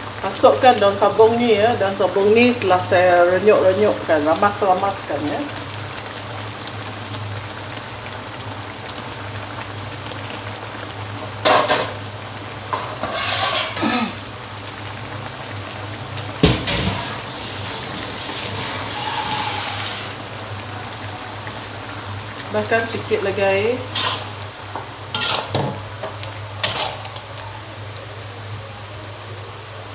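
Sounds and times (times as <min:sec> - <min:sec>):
food sizzling in a wok: 0:00.0 - 0:29.9
stove hum: 0:00.0 - 0:29.9
kitchen clatter: 0:11.4 - 0:12.0, 0:12.7 - 0:14.2, 0:16.2 - 0:17.2, 0:23.7 - 0:27.4.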